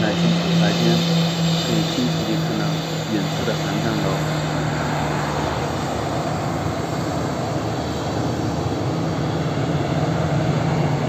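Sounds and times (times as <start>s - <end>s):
cars passing on expressway: 0.0s - 11.0s
jet engines rumbling: 0.0s - 11.0s.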